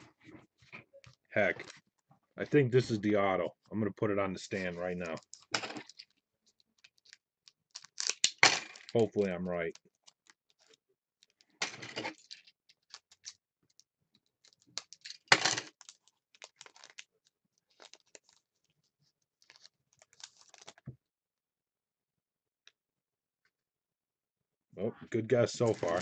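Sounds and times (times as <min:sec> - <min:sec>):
foil wrapper crinkling: 0:04.6 - 0:11.5, 0:12.1 - 0:20.9, 0:25.6 - 0:26.0.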